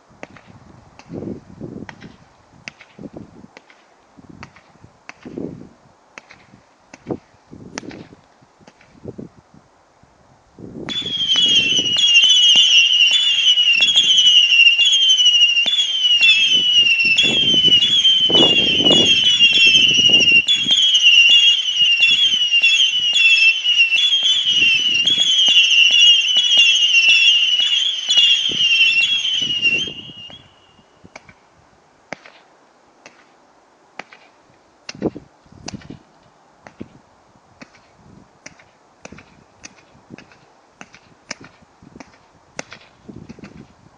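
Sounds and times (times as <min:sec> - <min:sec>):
firework pops and bangs: 0:00.2 - 0:01.2, 0:01.8 - 0:05.4, 0:06.1 - 0:09.0, 0:10.9 - 0:29.5, 0:31.1 - 0:31.4, 0:32.1 - 0:33.3, 0:34.0 - 0:36.0, 0:36.6 - 0:37.0, 0:37.6 - 0:43.7
firework whistles: 0:10.9 - 0:31.4.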